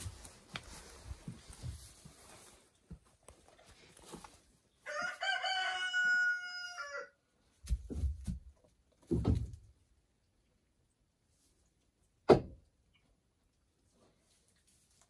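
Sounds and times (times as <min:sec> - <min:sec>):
rooster crowing: 0:04.8 - 0:07.2.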